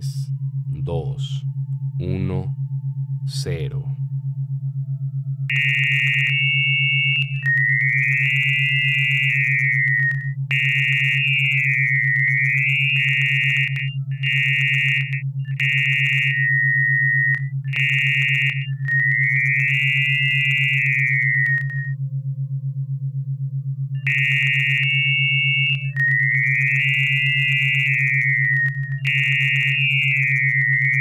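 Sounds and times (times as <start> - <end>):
fast-pulsing low hum: 0.0 - 31.0
high electronic tones: 5.5 - 22.0, 24.0 - 31.0.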